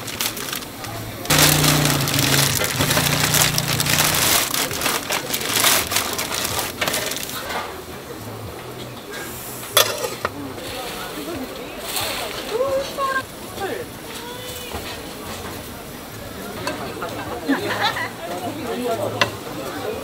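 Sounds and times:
plastic bag crinkling and rustling: 0.0 - 7.4.

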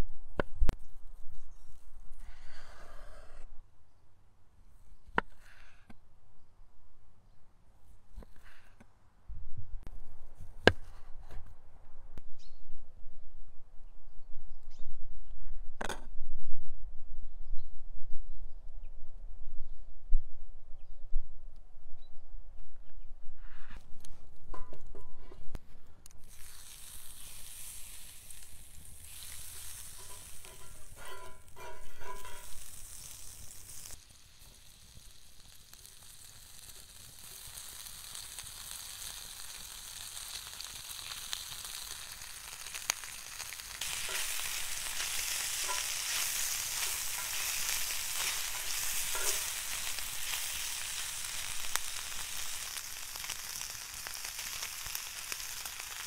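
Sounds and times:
butter sizzling on grill pan: 26.2 - 56.0
steak sizzling on pan: 26.2 - 56.0
squeaky scraping of tongs: 29.9 - 32.6.

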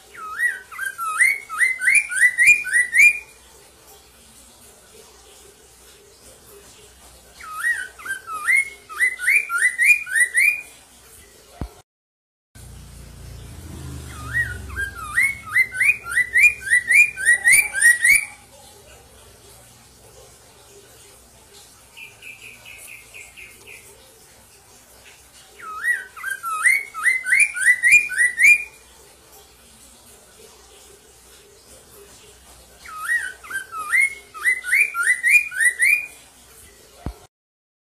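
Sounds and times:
bird singing whistled notes: 0.1 - 3.3, 7.4 - 10.7, 14.0 - 18.4, 25.6 - 28.8, 32.9 - 36.2.

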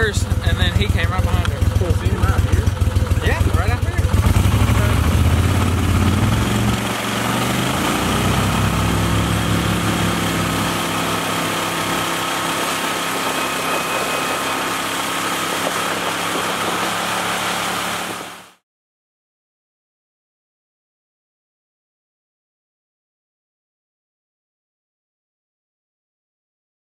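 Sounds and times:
outboard boat motor running: 0.0 - 18.6.

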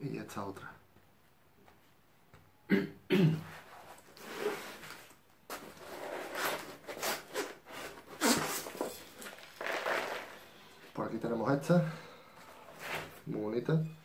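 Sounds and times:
man coughing: 2.7 - 3.5
packaging rustling and crinkling: 3.8 - 11.0.

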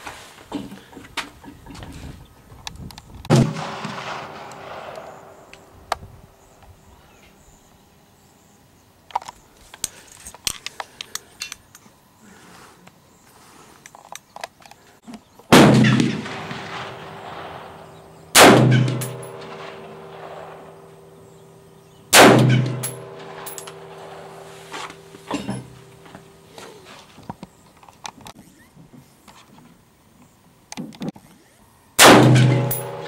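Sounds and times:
rifle shots ringing: 3.3 - 5.8, 15.5 - 26.0, 32.0 - 33.0
faint rifle handling clicks: 9.1 - 11.9.

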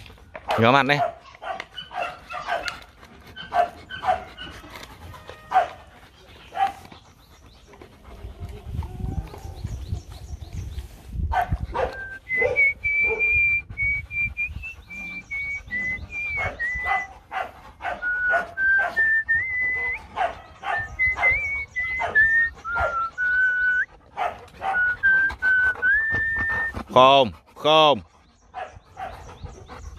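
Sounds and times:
dog panting: 0.0 - 29.9
dog whining: 17.8 - 23.9, 24.6 - 26.8.

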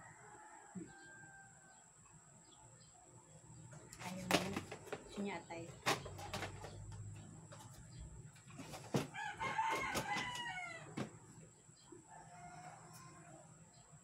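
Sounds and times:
rooster crowing: 0.0 - 2.0, 9.0 - 11.2, 12.0 - 13.8.

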